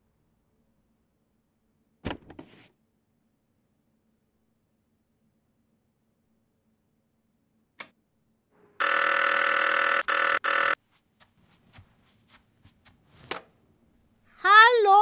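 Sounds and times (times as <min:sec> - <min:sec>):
click: 0:07.8 - 0:08.0
electric doorbell buzzing: 0:08.8 - 0:10.8.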